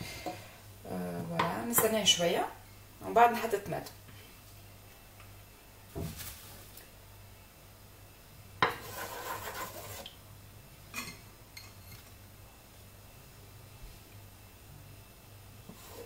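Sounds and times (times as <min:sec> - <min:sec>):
spoon scraping against pot: 0:08.6 - 0:10.1.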